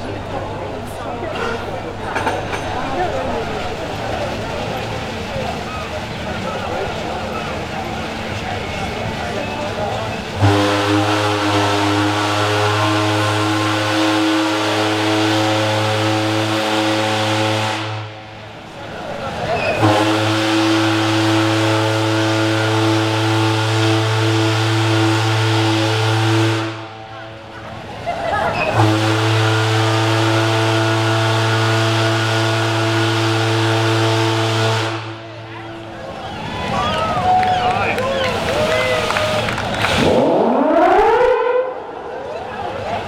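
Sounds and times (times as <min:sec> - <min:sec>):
steam whistle blast: 0:10.4 - 0:18.1, 0:19.6 - 0:27.0, 0:28.6 - 0:35.2.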